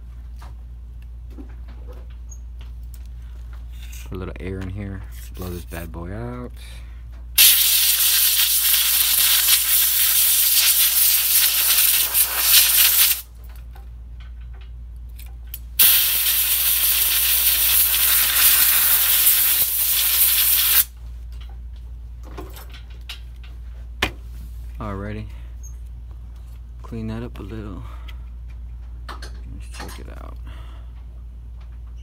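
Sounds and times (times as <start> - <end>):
compressed air hissing: 7.4 - 13.3, 15.8 - 20.9.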